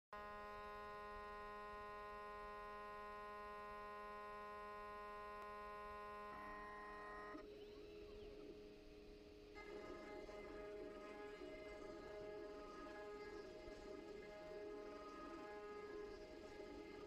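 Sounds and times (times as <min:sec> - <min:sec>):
cnc router whine: 0:00.2 - 0:17.0
motor low hum: 0:00.2 - 0:17.0.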